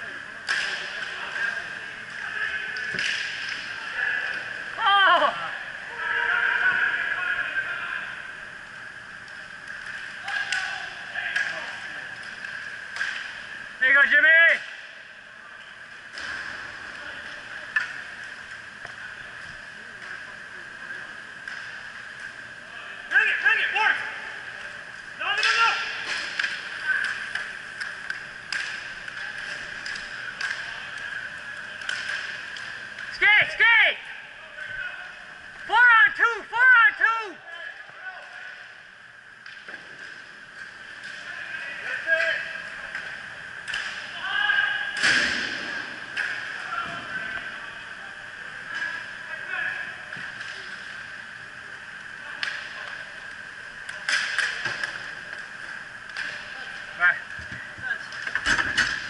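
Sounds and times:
steady background hum: 0.0 - 59.0
hockey sticks and puck clacking: 0.4 - 4.5, 9.2 - 14.9, 24.0 - 33.5, 39.4 - 47.5, 52.3 - 59.0.

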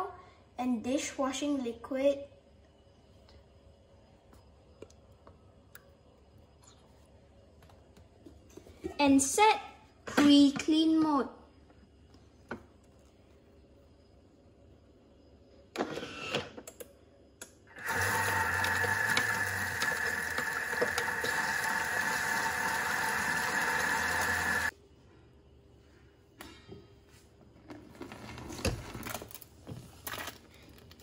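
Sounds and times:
blender motor whining: 17.7 - 24.7.

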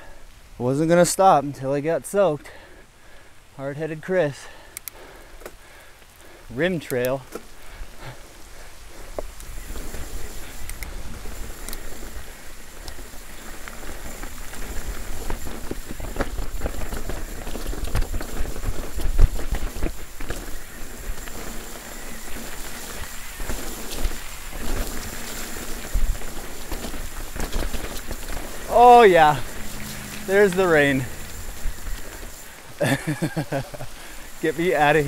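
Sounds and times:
bike tyres rolling on rough trail: 0.0 - 35.0
steady hiss: 0.0 - 35.0
bike knocks and rattles: 14.2 - 20.6.

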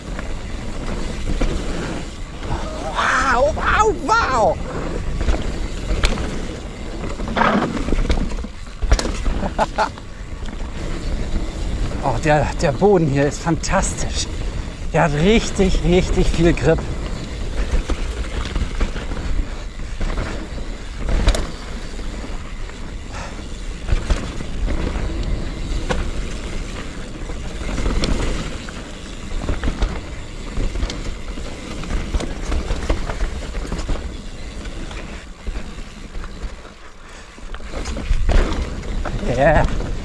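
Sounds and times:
wind rumbling on microphone: 0.0 - 36.3
tyres rolling on dirt: 0.0 - 40.0
bike clicks and knocks: 4.8 - 11.9, 15.2 - 40.0.

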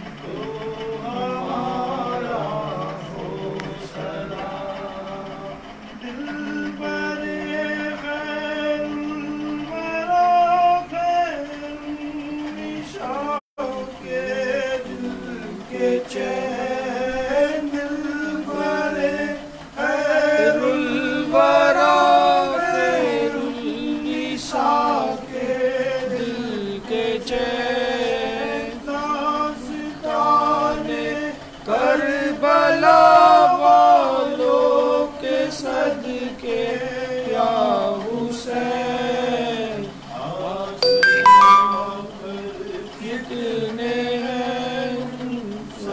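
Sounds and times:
men chanting together: 0.3 - 5.6, 14.1 - 40.8.

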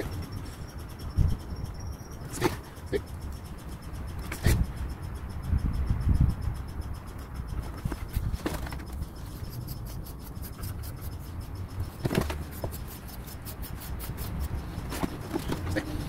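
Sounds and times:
sharp clicks: 0.0 - 16.0
brush rubbing through wiry fur: 8.2 - 16.0.

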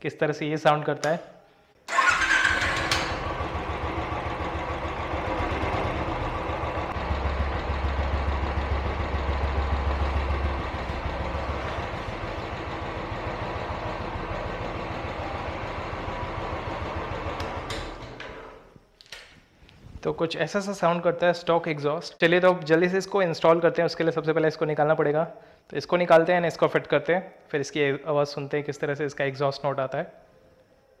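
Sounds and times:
motorcycle engine idling: 1.9 - 18.1.

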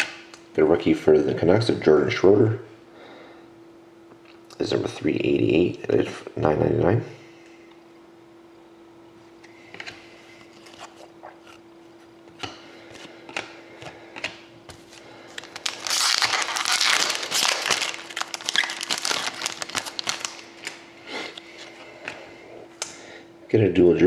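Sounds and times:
faint steady hum: 0.0 - 24.0
wrapper tearing and crinkling: 15.3 - 20.8.

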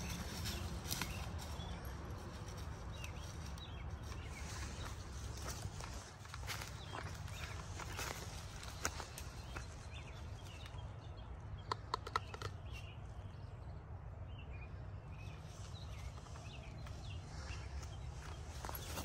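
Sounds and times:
footsteps crunching through dry leaves: 0.0 - 10.0, 17.2 - 19.0
sharp crackles of leaves: 0.0 - 10.6.

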